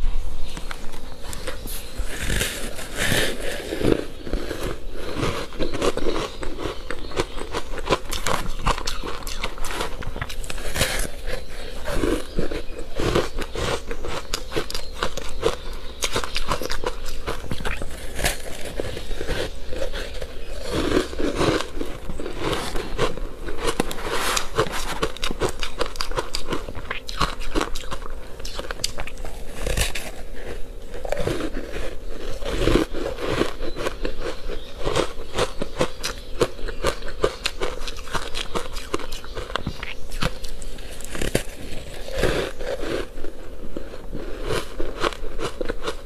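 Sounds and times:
crunching ice in mouth: 0.5 - 46.0.

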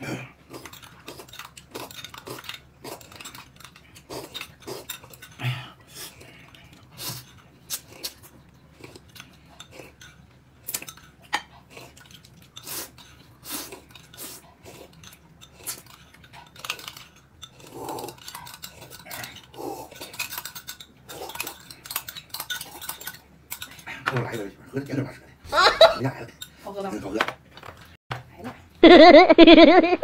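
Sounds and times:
chewing: 0.4 - 23.9
utensils clinking on dishes: 0.5 - 5.5, 6.3 - 26.7.

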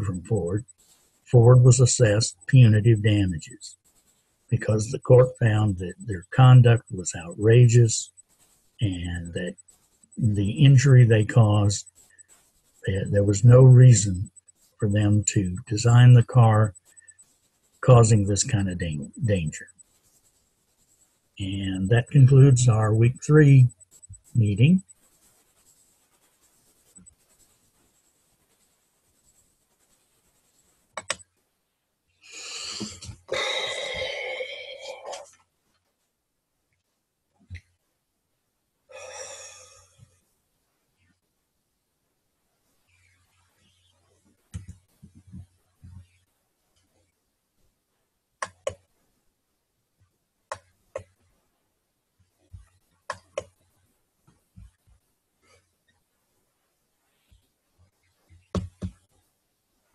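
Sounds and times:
scratchy rubbing on microphone: 0.0 - 31.3, 32.2 - 36.0, 42.8 - 47.2, 52.2 - 59.9
computer mouse clicks: 30.9 - 31.3, 48.4 - 48.8.

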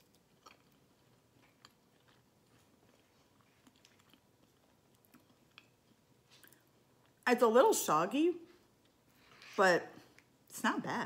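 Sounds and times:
chewing food: 0.0 - 7.3, 8.4 - 10.4.

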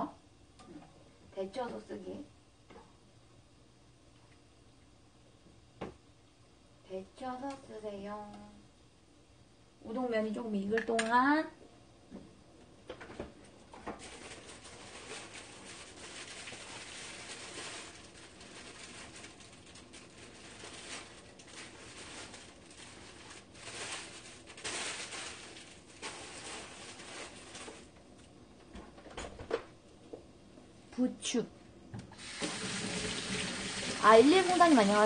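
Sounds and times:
meat and onions sizzling in pan: 32.1 - 35.0
pot of noodles boiling: 32.1 - 35.0.

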